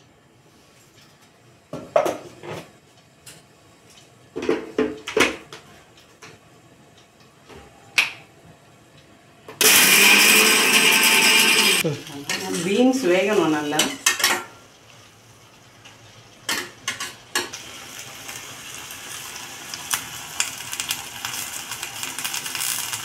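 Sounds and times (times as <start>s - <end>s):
mixer grinder motor whirring: 9.6s - 11.9s.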